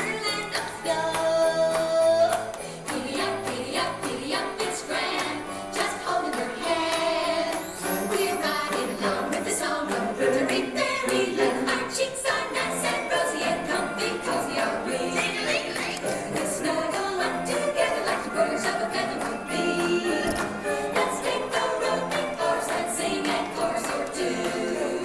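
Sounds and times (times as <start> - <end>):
country christmas song: 0.0 - 25.0
jingle bells shaking: 0.2 - 9.6.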